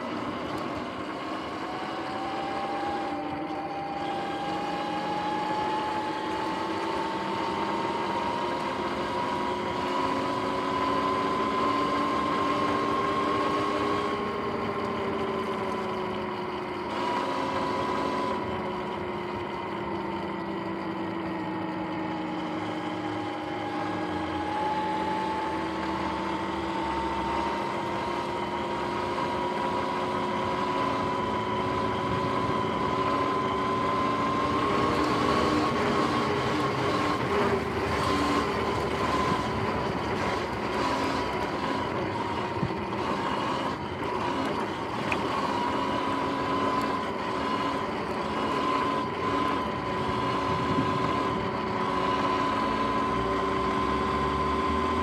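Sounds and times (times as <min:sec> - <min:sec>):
electric motor whining: 0:00.0 - 0:55.0
tyre and road noise: 0:00.0 - 0:55.0.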